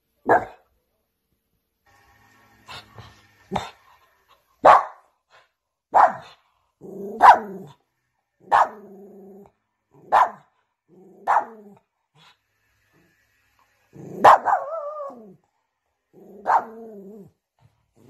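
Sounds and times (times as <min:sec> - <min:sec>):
dog barking: 0:00.2 - 0:00.7, 0:04.6 - 0:05.2, 0:05.9 - 0:06.4, 0:07.0 - 0:07.8, 0:08.4 - 0:08.9, 0:10.0 - 0:10.5, 0:11.2 - 0:11.8, 0:14.1 - 0:15.2, 0:16.3 - 0:16.9
dog growling: 0:06.8 - 0:07.8, 0:08.6 - 0:10.1, 0:10.9 - 0:11.9, 0:14.0 - 0:15.4, 0:16.1 - 0:17.4.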